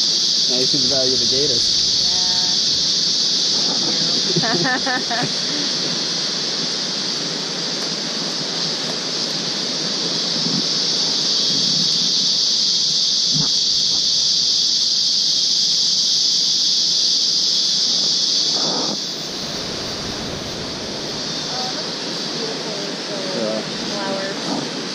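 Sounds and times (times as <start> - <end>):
leaves rustling: 0.0 - 4.4, 7.2 - 16.3, 19.1 - 24.0
forest insects droning: 0.0 - 24.9.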